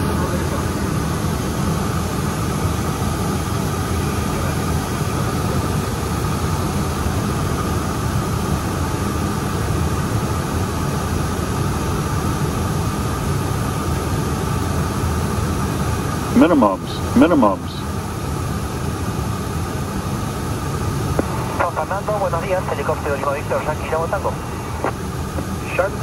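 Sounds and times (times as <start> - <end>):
jet engines humming: 0.0 - 26.0
rushing airflow: 21.0 - 25.8.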